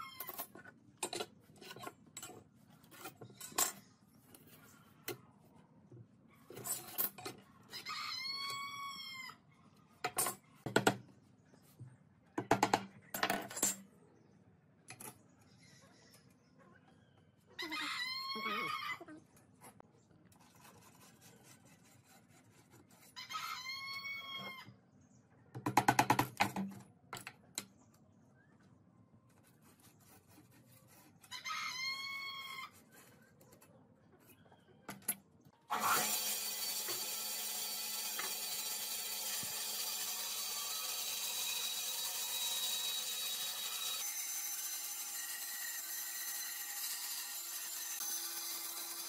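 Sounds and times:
rooster crowing: 0:07.7 - 0:09.4, 0:23.2 - 0:24.6
band saw running: 0:35.7 - 0:49.0.

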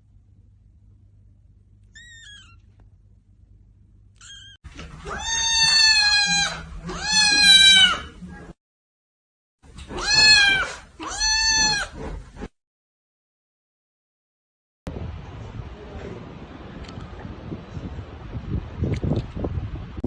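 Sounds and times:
cat meowing: 0:01.9 - 0:02.7, 0:04.2 - 0:08.2, 0:09.9 - 0:12.0.

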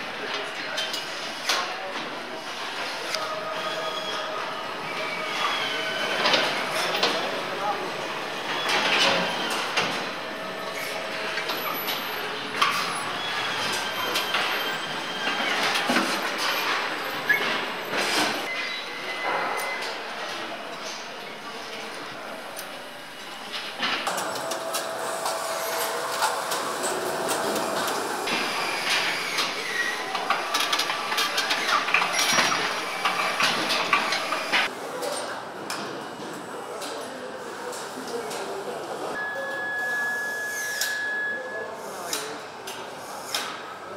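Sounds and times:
assembly line mechanical hum: 0:00.1 - 0:34.7
tools clanking and clicking: 0:27.5 - 0:34.7.

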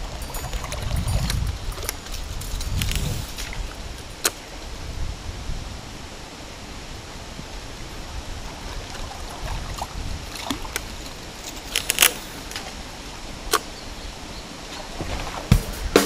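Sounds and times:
fishing gear clicking against boat: 0:00.0 - 0:04.4, 0:10.3 - 0:12.8
water noise: 0:00.0 - 0:16.0
wind: 0:00.0 - 0:16.0.

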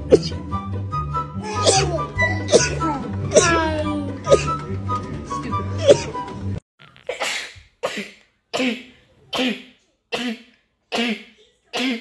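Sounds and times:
woman sneezing muffled: 0:01.5 - 0:01.9, 0:07.1 - 0:12.0.

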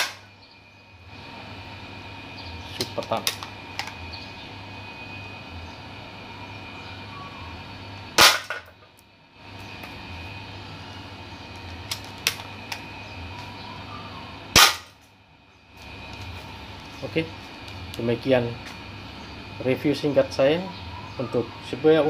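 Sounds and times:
airsoft rifle shots: 0:00.0 - 0:00.2, 0:08.2 - 0:08.6, 0:14.5 - 0:14.9.

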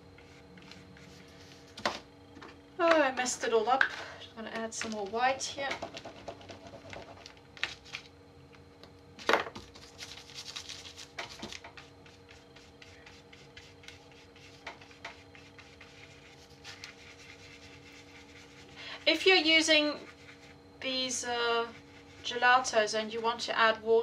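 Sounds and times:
faint steady hum: 0:00.0 - 0:24.0
crayon scratching on paper: 0:11.8 - 0:20.6.

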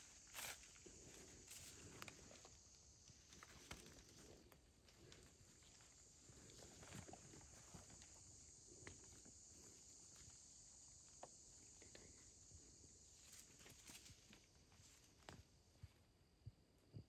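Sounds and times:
insects humming: 0:00.0 - 0:17.0.

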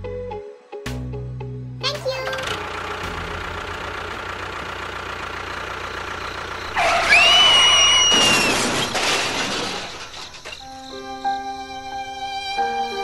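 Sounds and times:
tractor engine running: 0:02.2 - 0:12.0
loud high screech: 0:06.7 - 0:10.8
crash with breaking and clattering: 0:06.7 - 0:11.0.

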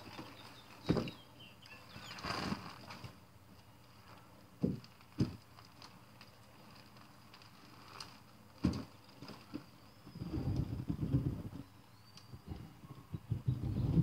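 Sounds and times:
wheelchair rolling on concrete: 0:00.0 - 0:03.2, 0:03.9 - 0:11.6.

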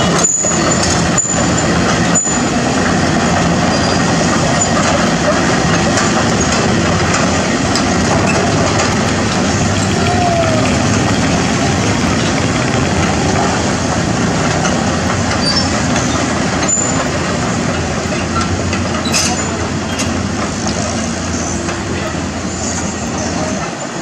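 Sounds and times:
excavator diesel engine running: 0:00.0 - 0:24.0
passing motorbikes: 0:04.2 - 0:18.8.

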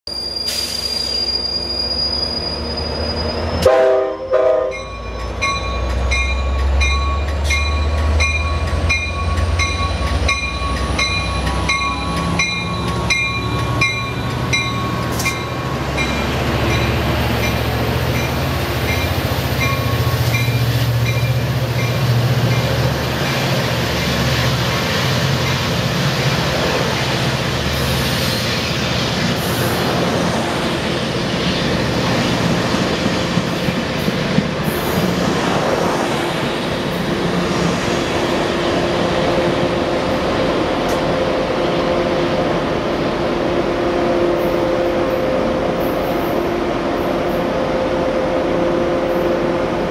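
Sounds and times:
train horn blast: 0:03.6 - 0:04.9
locomotive bell ringing: 0:04.1 - 0:23.5.

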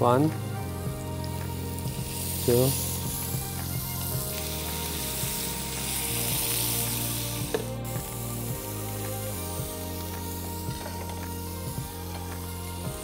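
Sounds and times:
background music with low notes: 0:00.0 - 0:13.0
scallops sizzling in a frying pan: 0:00.5 - 0:13.0.

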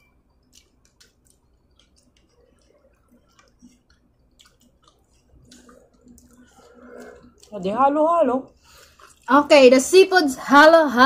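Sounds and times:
people chewing: 0:00.0 - 0:09.9
wet mouth clicks: 0:00.4 - 0:07.6.

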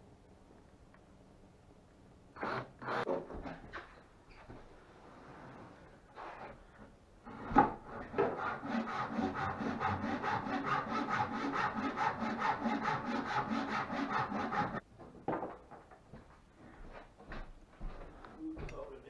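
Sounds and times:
hand saw cutting wood: 0:02.4 - 0:03.1, 0:07.2 - 0:14.8.

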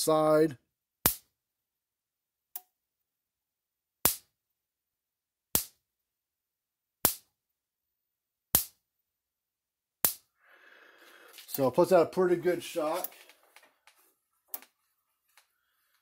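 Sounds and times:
electric fence spark snapping: 0:05.6 - 0:05.8, 0:07.0 - 0:07.3, 0:08.6 - 0:08.8.

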